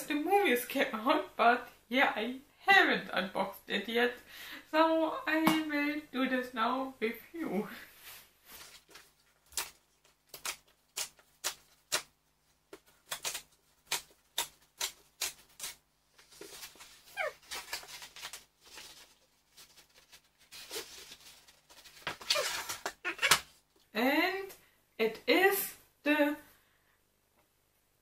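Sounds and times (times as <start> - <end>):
cardboard and tape ripping: 8.7 - 12.1, 12.8 - 23.5.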